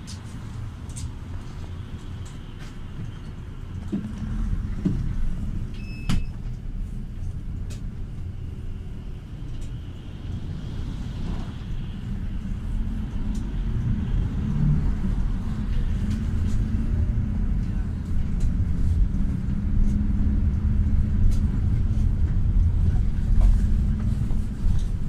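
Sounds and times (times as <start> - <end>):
vehicle engine and road rumble: 0.0 - 25.0.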